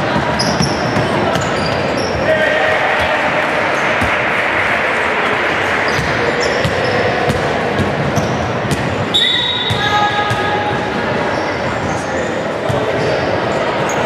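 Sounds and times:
basketball bouncing on wooden court: 0:05.9 - 0:11.0.

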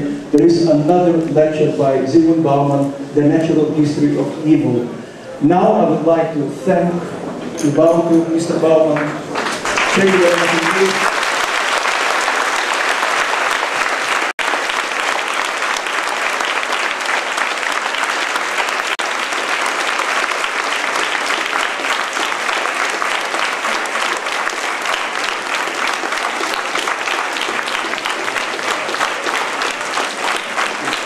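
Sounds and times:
large audience applauding: 0:08.9 - 0:31.0.

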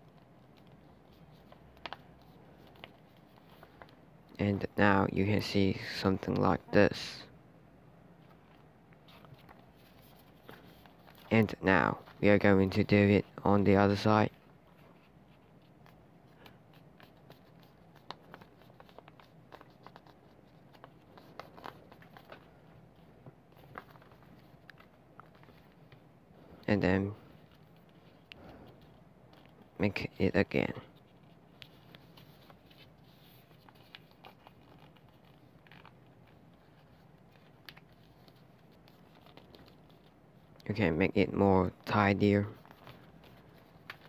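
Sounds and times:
paper rustling: 0:00.0 - 0:04.4, 0:08.2 - 0:44.0
paper crackling as creased: 0:14.7 - 0:26.0, 0:30.9 - 0:40.7, 0:41.8 - 0:44.0.

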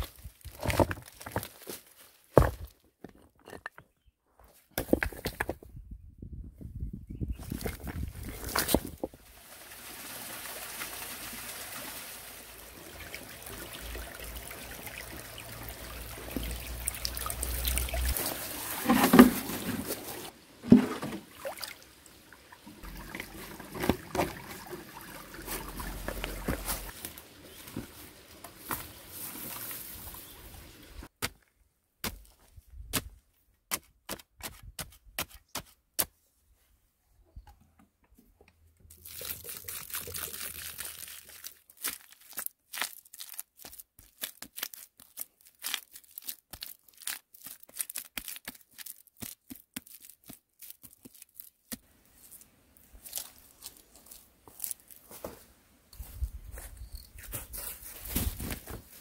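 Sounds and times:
wooden pole striking stony soil: 0:04.7 - 0:05.6, 0:20.6 - 0:21.2, 0:32.0 - 0:36.2
water trickling and pouring: 0:09.2 - 0:28.3, 0:38.9 - 0:42.0.

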